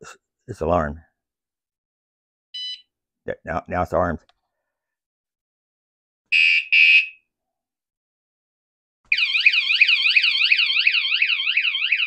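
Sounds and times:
bike alarm siren warbling: 6.3s - 7.2s, 9.1s - 12.0s.

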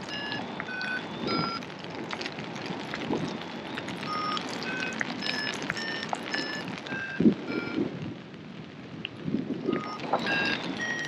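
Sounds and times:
variometer beeping: 0.0s - 1.6s, 4.0s - 7.8s, 9.7s - 11.0s
wind noise: 0.0s - 11.0s.

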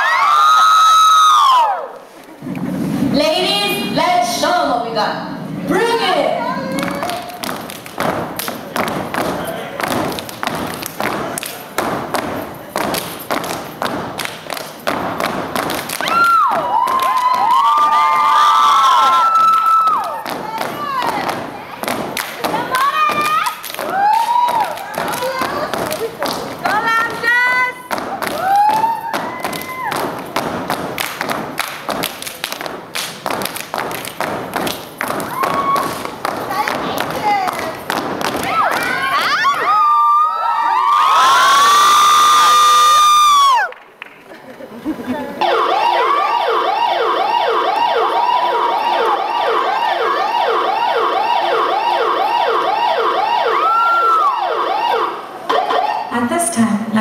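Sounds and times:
hands clapping: 6.7s - 27.3s, 27.9s - 39.6s, 43.6s - 44.4s
boots stomping: 6.8s - 39.6s
siren wailing: 45.4s - 56.2s.

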